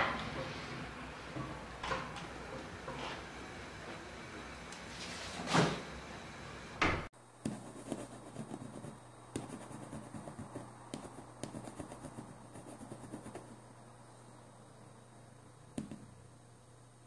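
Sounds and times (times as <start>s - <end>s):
pen scratching on board: 7.4s - 13.6s
hands and glass rubbing on board: 7.5s - 13.5s.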